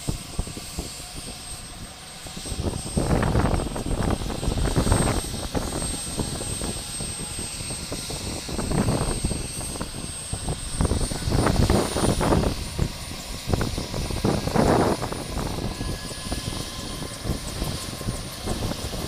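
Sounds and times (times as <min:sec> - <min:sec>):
helicopter turbine whine: 0:00.0 - 0:19.0
wind gusts on microphone: 0:00.0 - 0:19.0.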